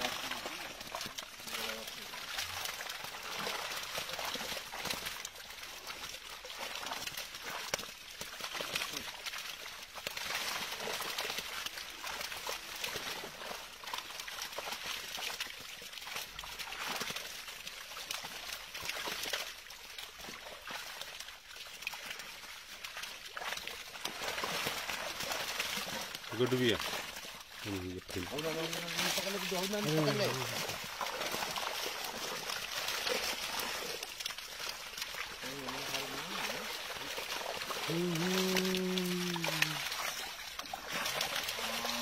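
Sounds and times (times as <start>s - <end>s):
fish splashing in net: 0.0s - 42.0s
water sloshing and trickling: 0.0s - 42.0s.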